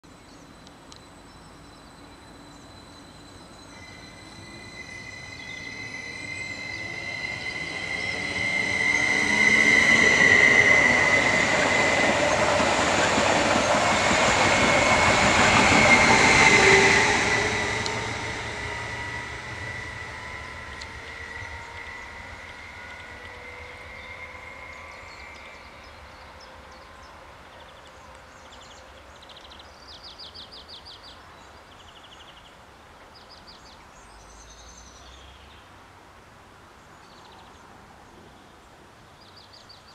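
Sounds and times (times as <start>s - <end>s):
electric train traction whine: 0.4s - 27.4s
train wheels rumbling on rails: 3.2s - 29.5s.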